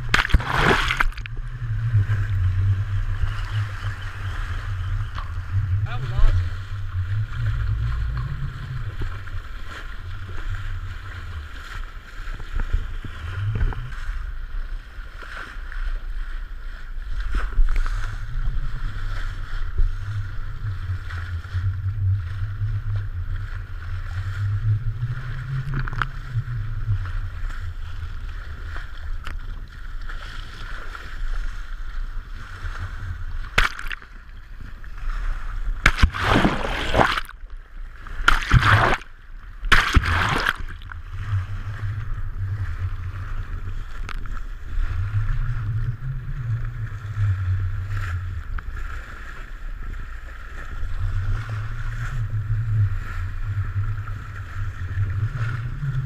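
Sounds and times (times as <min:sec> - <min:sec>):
sharp splash: 0:00.0 - 0:01.4, 0:33.4 - 0:34.4, 0:35.7 - 0:41.0
low rumble: 0:00.0 - 0:15.1, 0:16.6 - 0:56.0
seawater rushing and sloshing: 0:00.0 - 0:56.0.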